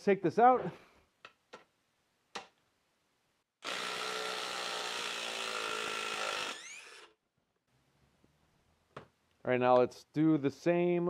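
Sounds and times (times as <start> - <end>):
impact driver running: 3.6 - 7.2.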